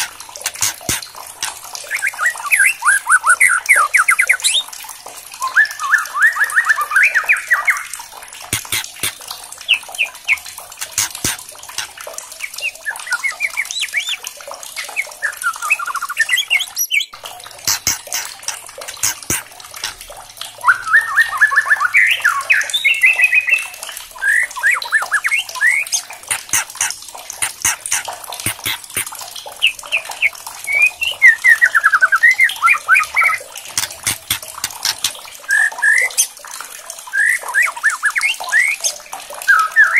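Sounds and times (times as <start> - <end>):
bird's sharp dry clicks: 0.0 - 1.6, 8.5 - 9.2, 10.8 - 12.0, 17.6 - 20.0, 26.3 - 29.2, 33.7 - 35.2
bird singing trilled phrases: 1.8 - 4.7, 5.4 - 8.0, 12.4 - 19.4, 20.6 - 36.3.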